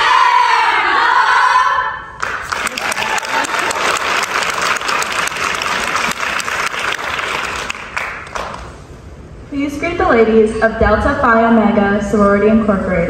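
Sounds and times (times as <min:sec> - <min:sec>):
audience applauding: 0:02.2 - 0:08.8.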